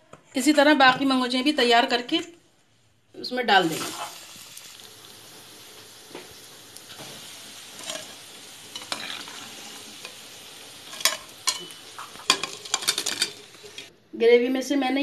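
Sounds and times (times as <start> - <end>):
dumplings deep-frying in oil: 3.2 - 13.9
metal spoon clinking on pan: 10.9 - 13.5.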